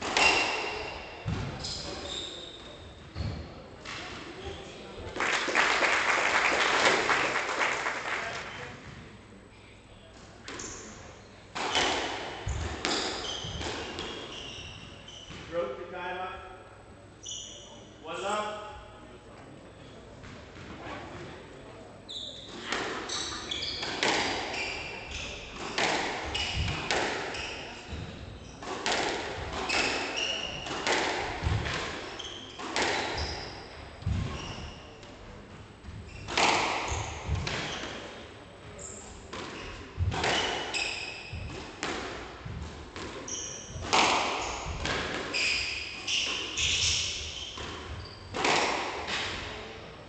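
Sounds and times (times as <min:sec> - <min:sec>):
shoes squeaking on wooden floor: 0:12.4 - 0:15.5, 0:22.1 - 0:28.6, 0:32.1 - 0:35.0, 0:35.8 - 0:38.1, 0:43.2 - 0:48.6
squash ball smacks: 0:27.9 - 0:30.0, 0:30.6 - 0:32.0, 0:41.4 - 0:45.3.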